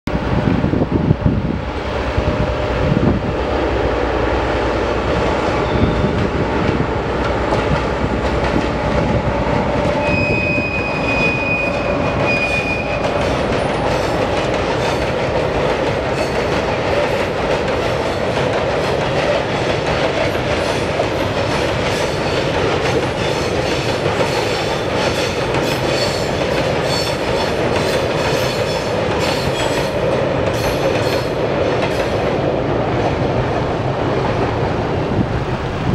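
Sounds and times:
diesel locomotive engine: 0.1 - 35.9
wheels clacking over rail joints: 5.0 - 34.5
freight wagons rolling on rails: 5.0 - 35.9.

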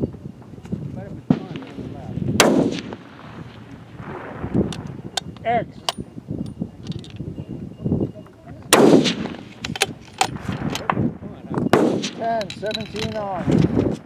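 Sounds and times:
rifle shot with echo: 1.3 - 4.8, 8.7 - 11.1, 11.7 - 12.5.

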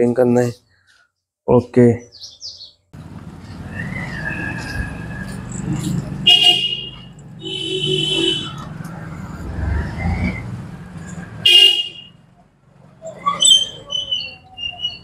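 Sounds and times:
low street rumble: 3.0 - 15.0
vehicle horn tooting: 6.2 - 8.7, 11.4 - 12.2.

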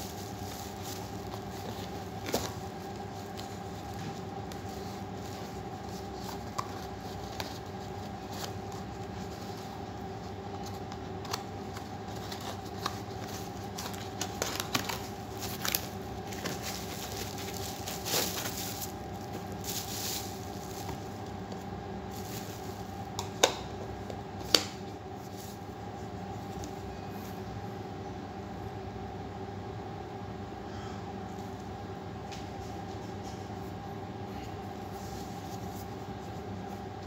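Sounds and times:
steady low hum: 0.0 - 37.0
cardboard box rustling and scraping: 12.2 - 21.1.

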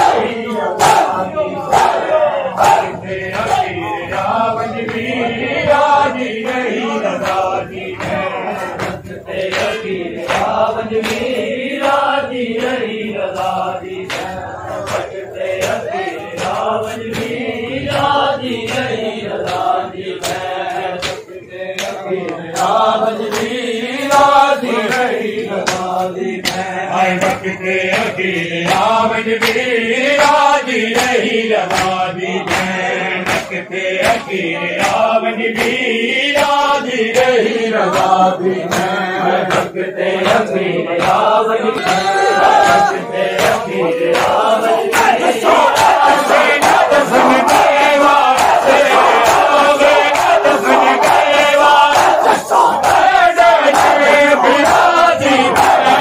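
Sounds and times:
men chanting a lament: 0.0 - 56.0
chest-beating slaps: 7.2 - 17.4, 18.0 - 24.4, 42.6 - 56.0.

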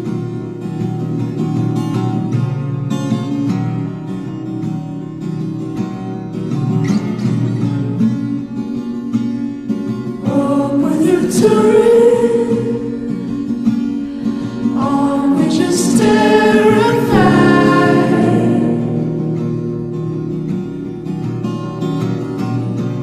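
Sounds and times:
strummed acoustic guitar: 0.0 - 23.0
person singing: 10.2 - 13.5, 14.2 - 19.5.

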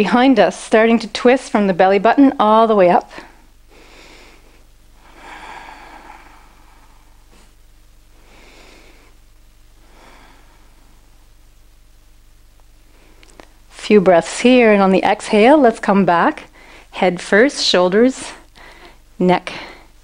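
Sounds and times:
woman breathing softly: 3.2 - 9.2, 9.8 - 11.1, 16.5 - 17.0, 18.5 - 20.0.

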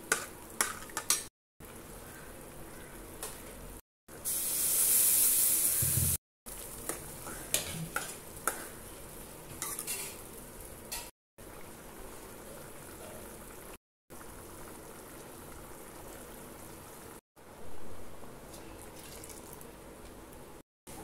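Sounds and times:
liquid pouring: 18.8 - 19.7.

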